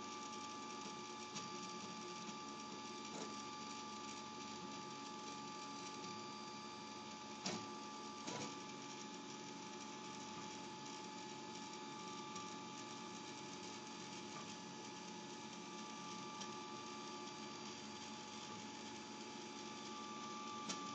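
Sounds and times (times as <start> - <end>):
faint mechanical hum: 0.0 - 20.9.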